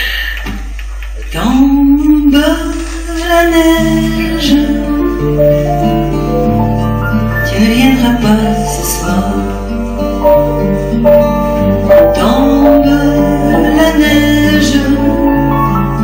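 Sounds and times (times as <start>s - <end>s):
woman singing a slow ballad: 1.3s - 6.0s, 7.4s - 10.2s, 12.1s - 16.0s
piano: 1.6s - 16.0s
nylon-string guitar: 3.2s - 16.0s
sustained bass notes: 3.9s - 16.0s.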